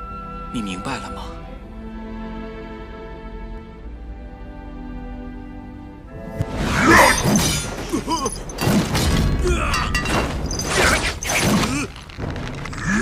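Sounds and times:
crashing smashing impacts: 6.4s - 13.0s.

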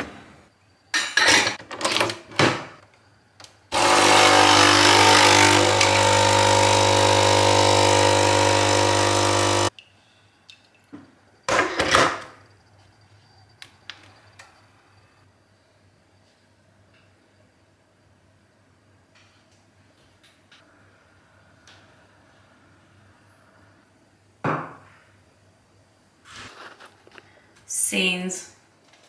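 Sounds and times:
coffee machine pump humming: 3.8s - 9.7s.

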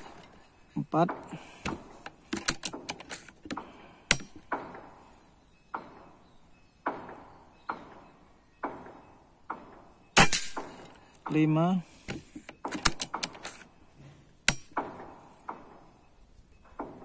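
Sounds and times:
air rifle shot: 1.1s - 5.0s, 8.6s - 10.9s
pellet clicking on metal target: 1.1s - 5.0s, 8.6s - 11.4s, 12.5s - 13.7s, 14.4s - 15.9s.

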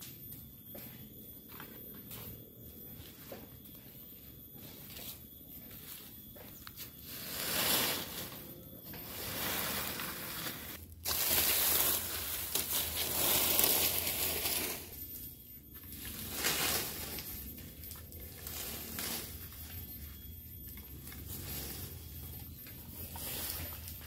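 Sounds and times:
dry leaves raked and dragged: 7.0s - 14.9s, 16.0s - 19.6s, 21.2s - 22.1s, 23.0s - 24.0s.

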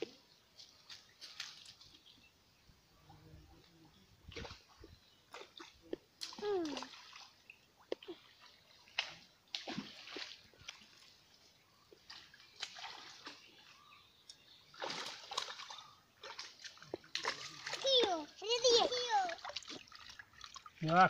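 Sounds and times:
fish splashing in water: 4.3s - 11.2s, 11.9s - 13.8s, 14.7s - 20.8s.

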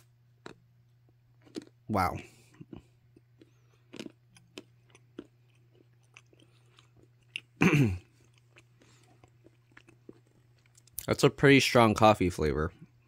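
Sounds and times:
mouth chewing chocolate: 0.0s - 0.6s, 1.3s - 11.1s
chocolate shell crunching: 0.0s - 2.1s, 3.1s - 7.6s, 8.2s - 11.1s
faint low hum: 0.0s - 13.0s.

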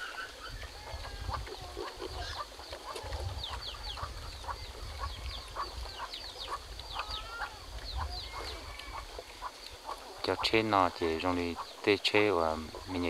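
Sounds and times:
chickens clucking: 0.0s - 13.0s.

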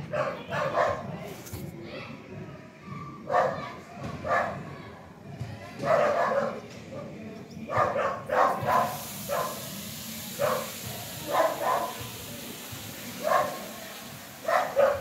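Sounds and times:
dog barking: 0.0s - 1.1s, 3.3s - 3.6s, 4.2s - 4.6s, 5.8s - 6.6s, 7.7s - 9.7s, 10.4s - 12.0s, 13.2s - 13.7s, 14.4s - 15.0s.

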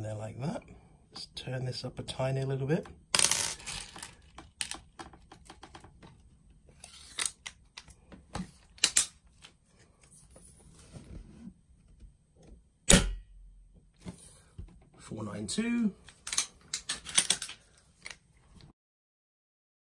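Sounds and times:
rifle handling clicks and rattles: 8.6s - 9.5s, 16.0s - 18.3s
airsoft rifle shot: 12.9s - 13.2s.

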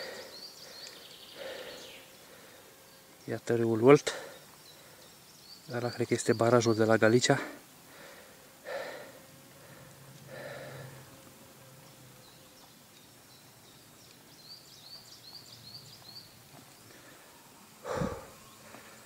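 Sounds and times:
small bird chirping: 0.0s - 2.3s, 11.8s - 17.0s
soft breath: 0.0s - 2.8s, 7.9s - 11.1s, 16.8s - 19.0s.

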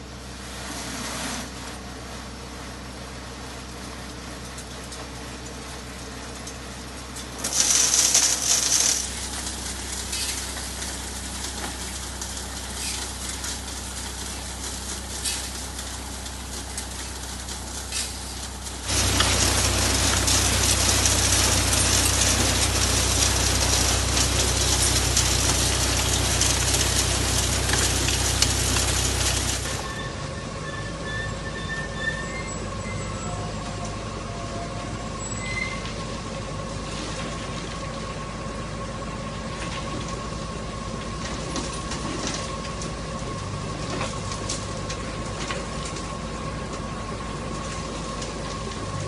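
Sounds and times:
engine humming: 4.0s - 49.0s
belt conveyors running: 7.4s - 9.2s, 18.9s - 30.0s
loose material rattling and pouring: 7.4s - 29.9s.

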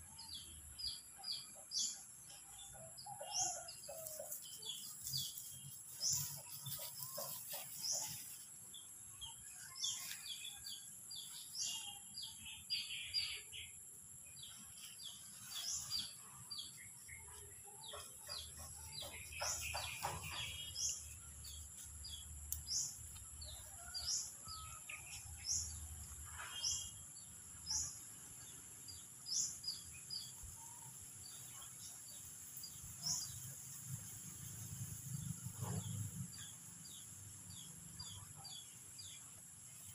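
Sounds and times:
small birds chirping: 3.4s - 39.9s
steady high-pitched hiss: 25.1s - 38.0s.

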